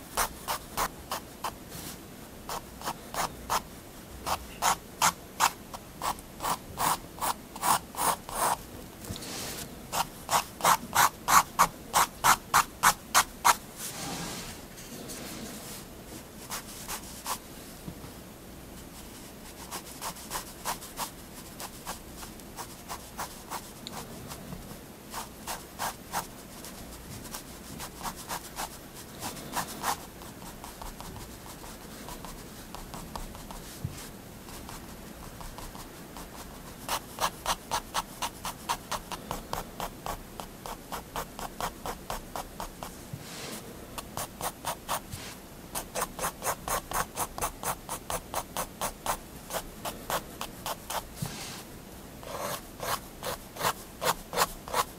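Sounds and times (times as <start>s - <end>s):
pen scratching on paper: 4.2s - 8.6s, 9.9s - 13.6s, 45.8s - 51.0s, 52.2s - 54.9s.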